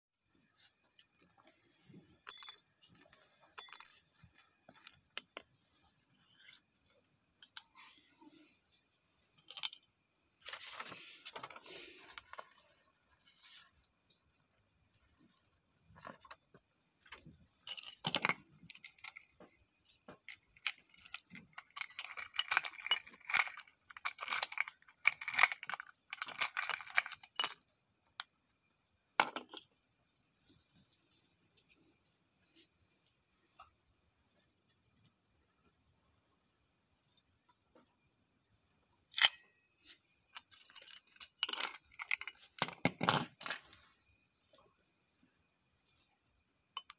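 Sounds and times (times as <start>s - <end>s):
small metal objects clinking: 2.2s - 5.5s, 9.4s - 12.6s, 17.2s - 27.8s, 39.1s - 43.8s.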